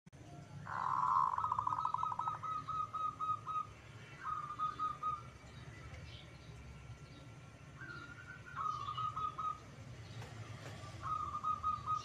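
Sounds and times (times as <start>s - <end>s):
dove cooing: 0.6s - 5.4s, 7.8s - 9.8s, 10.5s - 12.0s.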